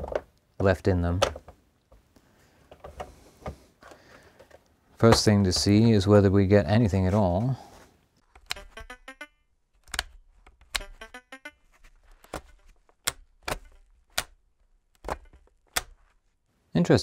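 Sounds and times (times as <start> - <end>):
stuttering electronic blips: 8.5 - 9.4, 10.8 - 11.7.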